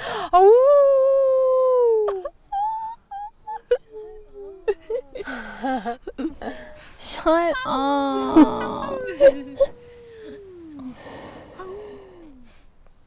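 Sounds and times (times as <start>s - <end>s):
woman howling: 0.4s - 12.6s
laughter: 4.6s - 6.7s, 7.3s - 9.8s
high yips and hoots: 6.8s - 12.6s.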